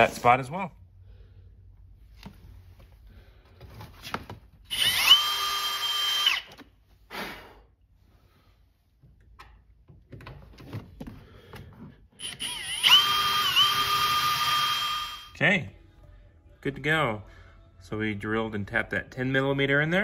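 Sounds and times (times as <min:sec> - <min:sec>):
cordless drill whining: 0:04.7 - 0:06.7, 0:12.2 - 0:15.3.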